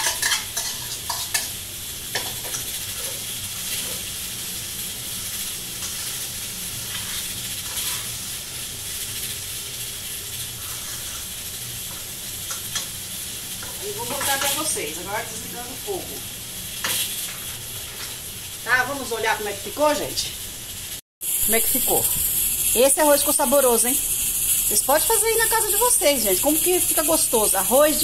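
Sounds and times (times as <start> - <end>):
spoon scraping and clinking pan: 0.0 - 1.5, 13.6 - 14.7
rice sizzling in a pan: 0.0 - 28.0.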